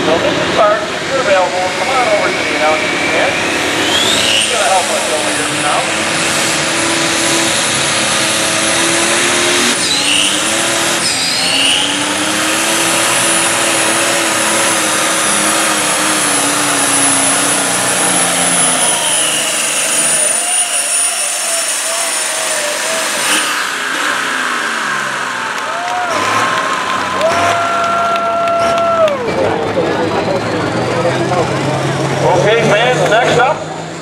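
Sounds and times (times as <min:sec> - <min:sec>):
tractor diesel engine under load: 0:00.0 - 0:34.0
turbo whistle: 0:01.9 - 0:05.1, 0:09.7 - 0:12.3, 0:16.8 - 0:22.4.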